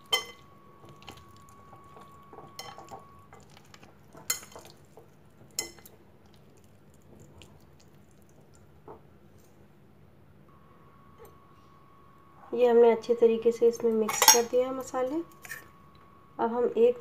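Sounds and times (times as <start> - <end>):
wet rustling of meat in paste: 0.8 - 8.8.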